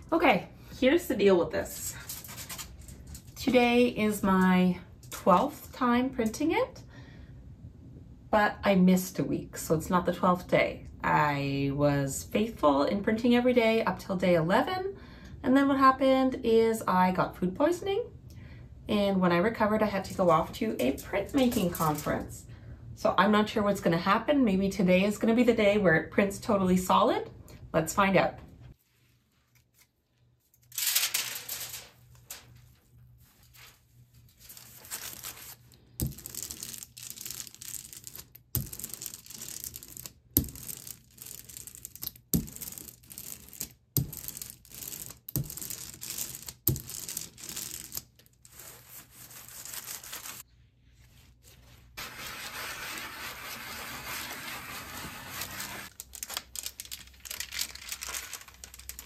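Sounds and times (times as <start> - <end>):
paper peeled off foil: 30.6 - 32.7, 33.4 - 35.7, 47.1 - 50.4, 51.9 - 59.0
ink roller crackling rasp: 52.0 - 55.9.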